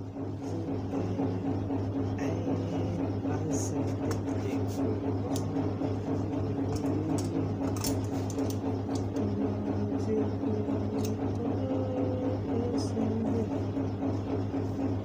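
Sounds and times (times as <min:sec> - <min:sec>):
motor hum with throb: 0:00.0 - 0:15.0.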